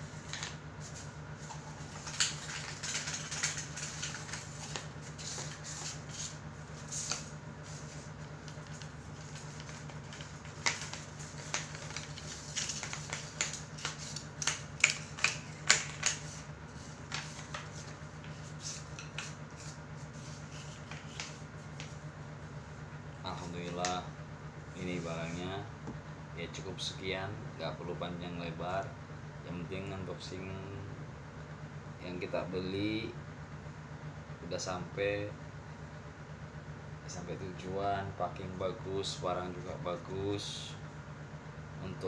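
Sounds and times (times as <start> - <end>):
steady low hum: 0.0 - 42.0.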